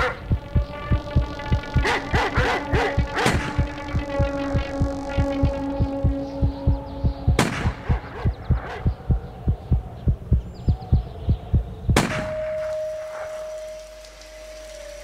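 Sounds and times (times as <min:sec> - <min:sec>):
steady high tone ringing: 0:00.0 - 0:08.5, 0:12.2 - 0:15.0
low thumping pulse: 0:00.0 - 0:13.7
held drone: 0:00.0 - 0:15.0.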